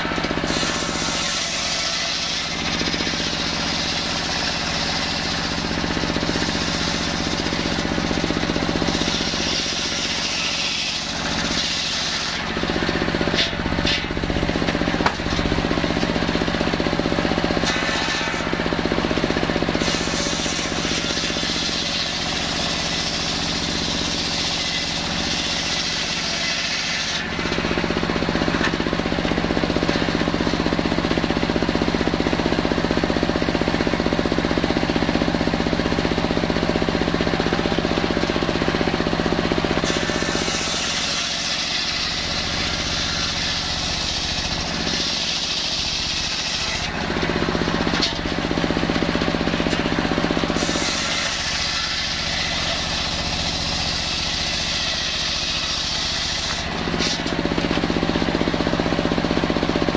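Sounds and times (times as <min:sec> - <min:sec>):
circular saw ripping logs: 0:00.0 - 0:59.9
saw engine running: 0:00.0 - 0:59.9.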